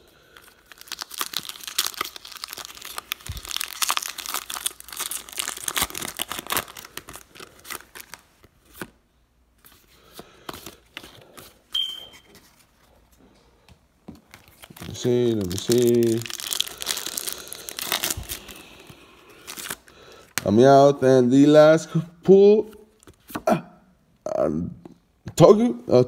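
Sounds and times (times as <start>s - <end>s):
foil wrapper crinkling and tearing: 0.3s - 8.9s, 14.3s - 20.4s
cards rustling: 0.4s - 9.0s, 9.6s - 13.2s, 14.0s - 20.6s
short high beep: 11.8s - 12.2s.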